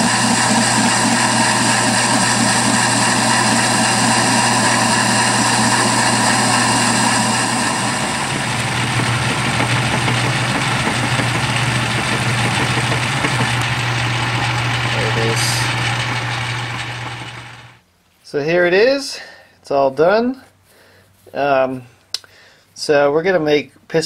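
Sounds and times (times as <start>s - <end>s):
metal lathe hum and whine: 0.0s - 17.8s
parting tool cutting metal: 0.0s - 17.8s.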